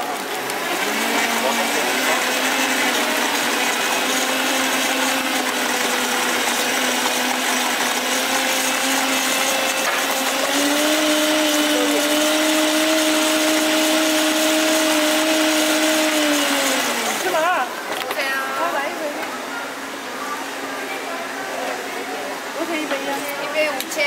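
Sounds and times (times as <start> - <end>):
blender running: 0.0 - 18.9.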